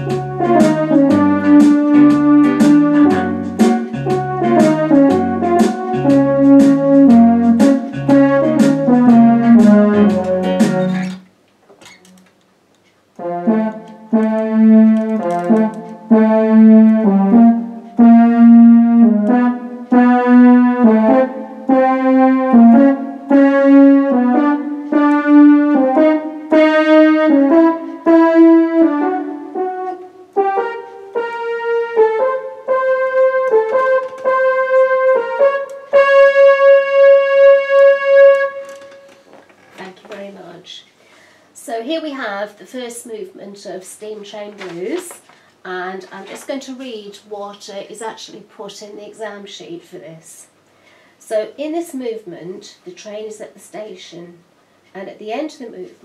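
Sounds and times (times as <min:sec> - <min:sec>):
electronic keyboard playing blues: 0:00.0 - 0:11.3, 0:13.2 - 0:39.5.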